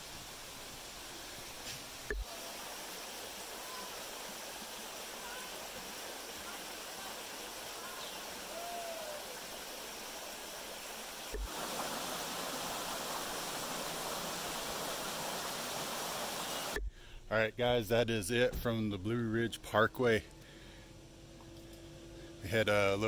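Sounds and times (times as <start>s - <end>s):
water rushing over stones: 0.0s - 16.8s.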